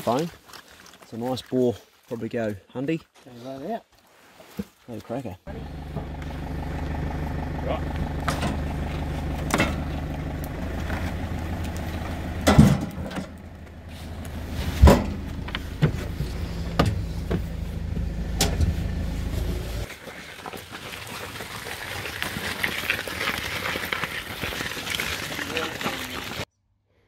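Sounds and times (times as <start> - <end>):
truck engine idling: 5.5 - 19.9
loud thumps: 8.0 - 13.5, 14.6 - 18.8.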